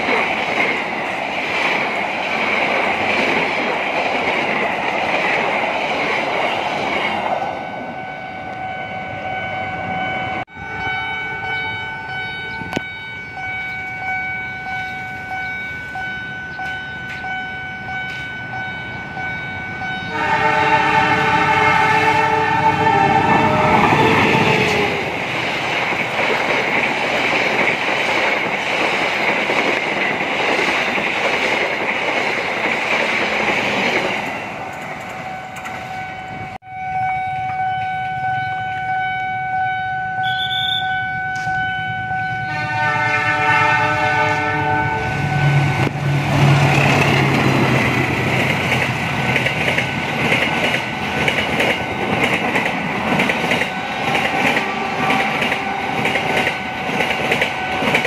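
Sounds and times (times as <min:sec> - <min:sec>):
train rumbling past: 0:00.0 - 0:40.1, 0:41.0 - 0:58.0
train engine hum and wheel noise: 0:00.0 - 0:58.0
steady high tone: 0:07.1 - 0:25.3, 0:44.3 - 0:48.1
diesel locomotive horn blasting: 0:07.5 - 0:18.6, 0:19.2 - 0:25.2, 0:35.2 - 0:46.8, 0:53.8 - 0:58.0.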